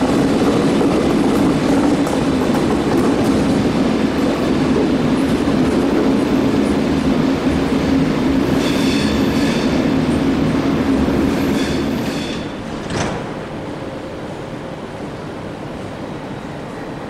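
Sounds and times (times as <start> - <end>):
electric train rolling past: 0.0 - 17.0
high wheel squeal: 8.6 - 9.8, 11.4 - 12.6.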